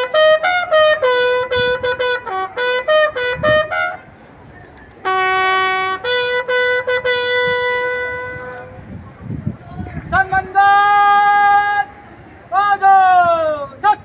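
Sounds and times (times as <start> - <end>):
bugle call: 0.0 - 4.1, 5.0 - 8.8.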